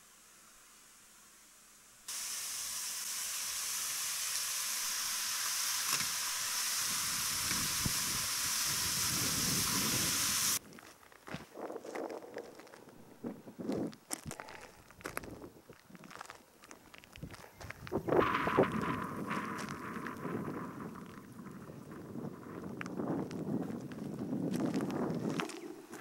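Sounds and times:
loud steady hiss: 0.0 - 10.6.

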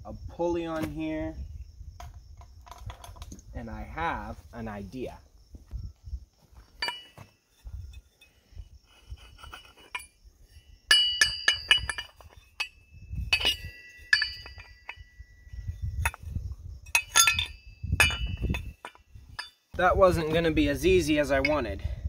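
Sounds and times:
metal pulleys clinking: 10.9 - 15.1, 17.0 - 19.6.

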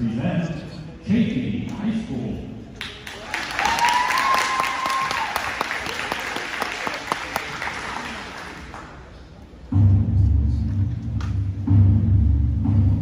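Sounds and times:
audience applauding and cheering: 2.8 - 9.1
low music: 9.4 - 13.0.

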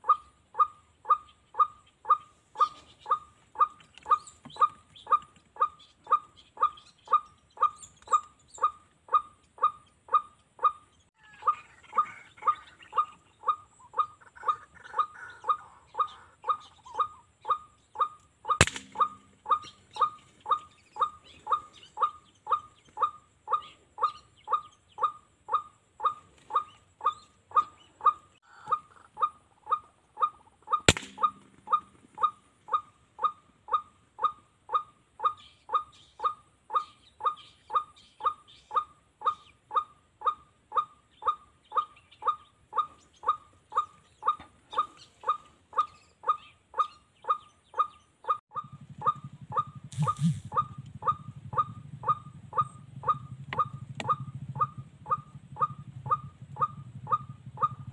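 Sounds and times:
electronic bird call repeating: 0.0 - 57.9
sharp crack: 18.6 - 19.3, 30.9 - 31.7
low rumble: 48.6 - 57.9.

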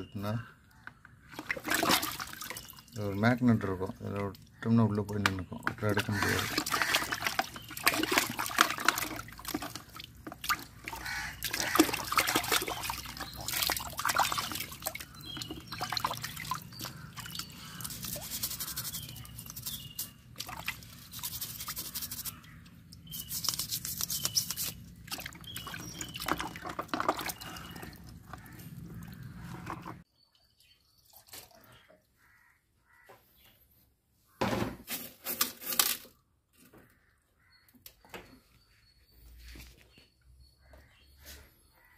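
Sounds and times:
water splashing and dripping: 1.2 - 23.8, 24.5 - 32.1
brush scrubbing: 16.9 - 24.9.

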